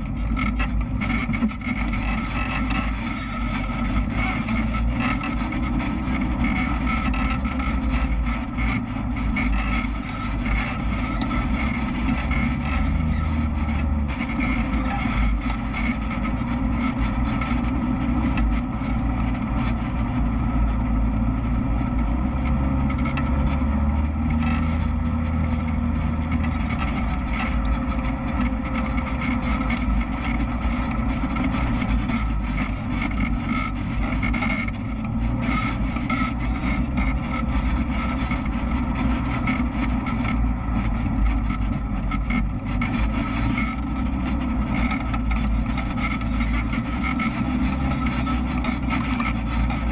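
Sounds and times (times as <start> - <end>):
off-road vehicle engine running: 0.0 - 49.9.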